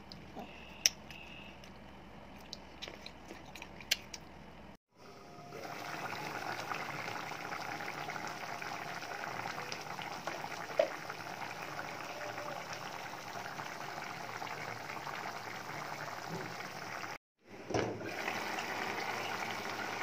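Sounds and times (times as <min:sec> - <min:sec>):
curry bubbling and crackling: 0:05.6 - 0:17.2.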